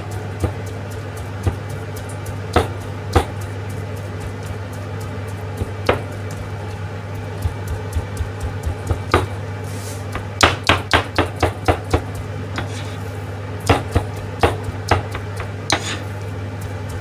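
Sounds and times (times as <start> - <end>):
steady low hum: 0.0 - 17.0
knife chopping on plastic board: 2.5 - 3.4, 7.4 - 9.4, 10.2 - 13.0, 13.6 - 16.1.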